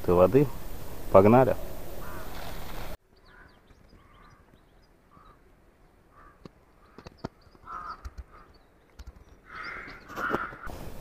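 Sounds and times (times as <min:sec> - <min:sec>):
crows cawing: 0:02.0 - 0:02.6, 0:03.2 - 0:05.5, 0:06.1 - 0:08.7, 0:09.4 - 0:10.7
faint clicks: 0:06.4 - 0:09.6.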